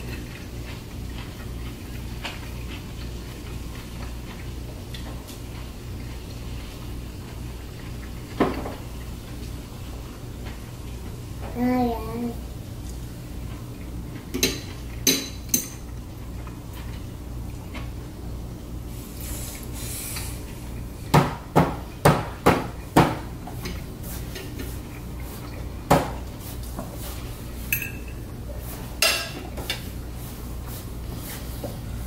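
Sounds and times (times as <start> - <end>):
low steady hum: 0.0 - 32.0
knife and fork clinking on plate: 27.7 - 28.2.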